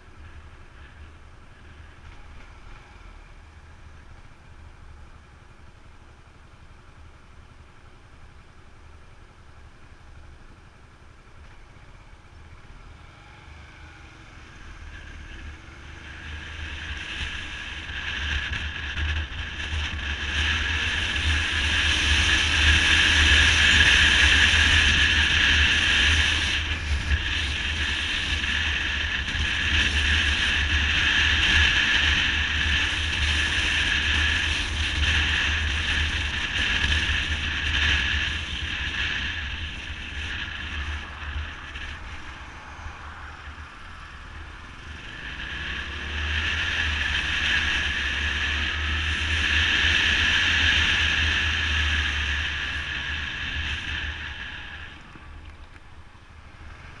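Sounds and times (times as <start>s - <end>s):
motorcycle engine: 0.0s - 57.0s
wind rushing over microphone: 15.0s - 55.4s.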